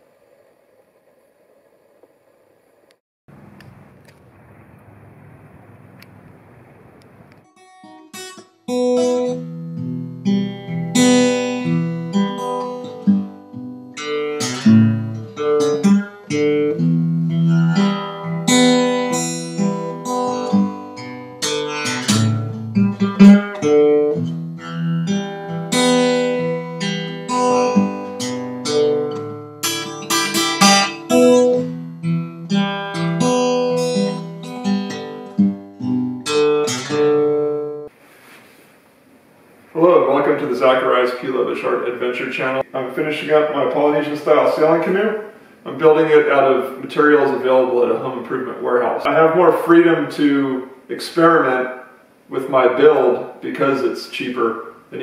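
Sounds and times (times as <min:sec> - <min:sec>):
acoustic guitar music: 0:03.3 - 0:38.0.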